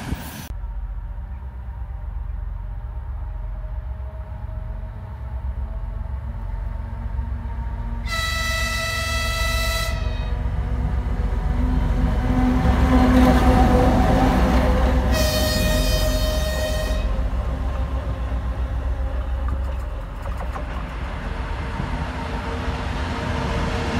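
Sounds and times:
diesel locomotive passing: 0:00.0 - 0:23.9
high-pitched train horn: 0:07.6 - 0:19.1.

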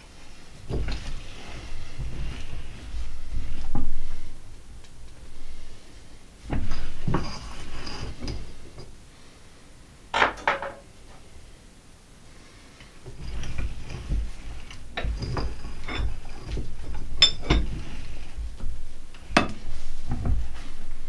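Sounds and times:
dull handling thumps: 0:13.0 - 0:21.0.

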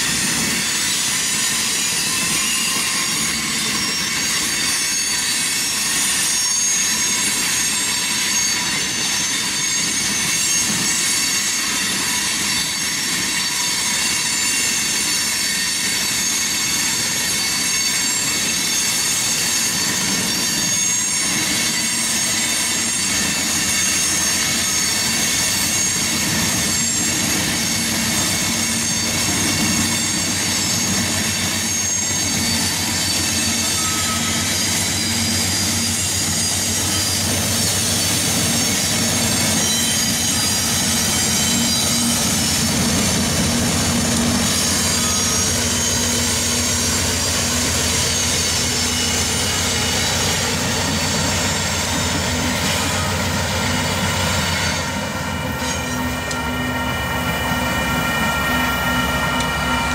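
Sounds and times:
train wheels squealing and clattering: 0:00.0 - 0:59.9
locomotive engine drone: 0:19.4 - 0:59.9.

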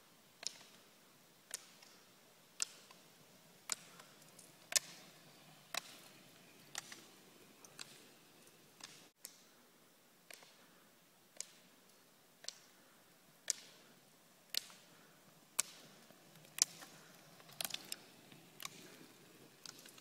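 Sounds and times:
ski pole tips clicking on asphalt: 0:00.4 - 0:00.8, 0:01.5 - 0:09.4, 0:10.3 - 0:10.6, 0:11.4 - 0:11.7, 0:12.4 - 0:12.8, 0:13.4 - 0:13.9, 0:14.5 - 0:20.0.

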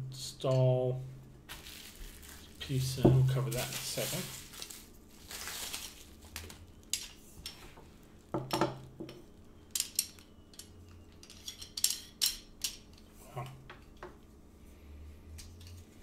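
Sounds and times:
metal parts clicking and clinking: 0:08.5 - 0:13.2
metal parts rubbing: 0:09.7 - 0:13.2.

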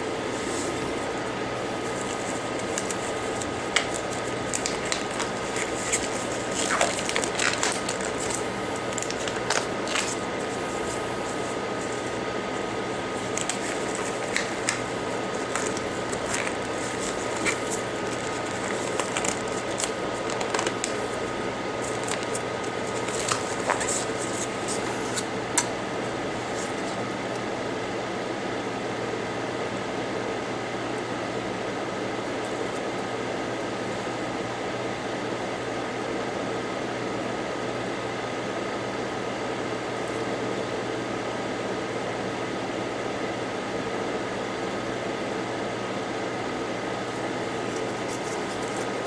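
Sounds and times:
faint steady whine: 0:00.0 - 0:49.0
small clicks and crackles: 0:02.0 - 0:10.2, 0:13.3 - 0:21.0.

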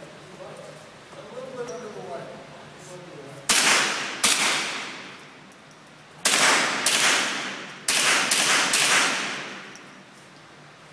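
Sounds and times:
echoing decay indoors: 0:03.4 - 0:10.6
rifle shots: 0:03.5 - 0:05.2, 0:06.2 - 0:09.7.

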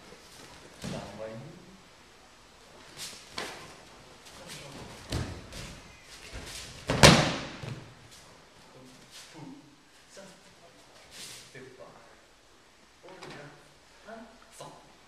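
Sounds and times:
body slapping onto mats: 0:02.8 - 0:03.8, 0:04.6 - 0:08.1
bare feet thudding on mats: 0:04.6 - 0:08.0.

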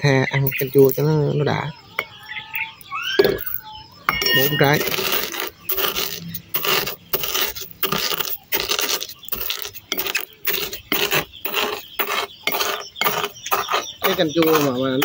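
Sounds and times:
pestle grinding in metal bowl: 0:04.1 - 0:15.0.

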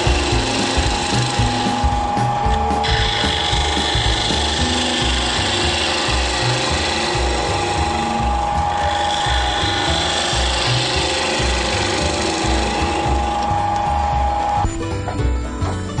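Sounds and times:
gouge cutting wood hiss: 0:00.0 - 0:14.3
lathe motor whine: 0:00.0 - 0:14.8.

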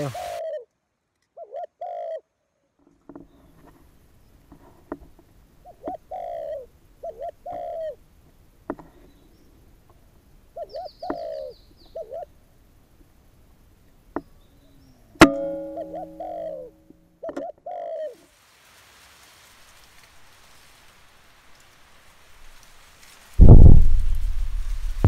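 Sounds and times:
doves cooing: 0:00.0 - 0:00.6, 0:01.4 - 0:02.2, 0:05.6 - 0:08.0, 0:10.5 - 0:12.3, 0:15.6 - 0:18.2
bird chirping: 0:10.6 - 0:12.3, 0:14.2 - 0:18.0
short ringing hum: 0:15.2 - 0:16.9
air rifle shot: 0:23.4 - 0:25.0.

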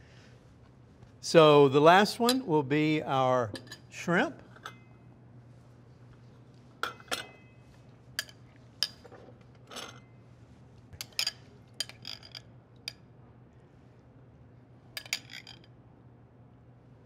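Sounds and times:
metal spoon clinking glass bowl: 0:11.0 - 0:13.0, 0:15.0 - 0:15.7.

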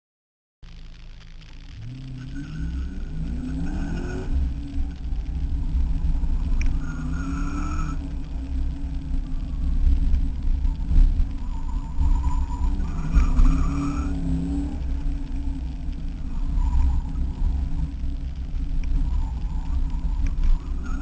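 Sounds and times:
car engine accelerating hard: 0:01.6 - 0:21.0.

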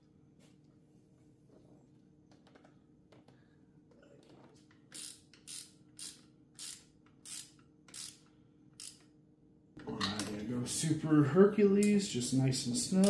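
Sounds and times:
ratchet wrench clicking: 0:04.9 - 0:09.1.

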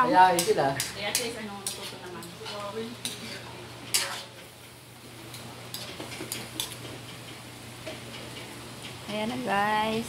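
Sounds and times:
metal spatula scraping wok: 0:00.4 - 0:04.5.

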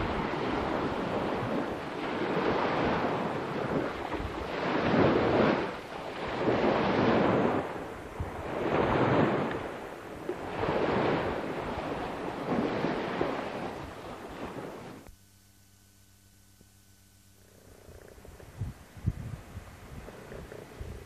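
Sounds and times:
surf washing ashore: 0:00.0 - 0:15.1
wind rumbling on microphone: 0:00.0 - 0:15.1, 0:17.4 - 0:21.0.

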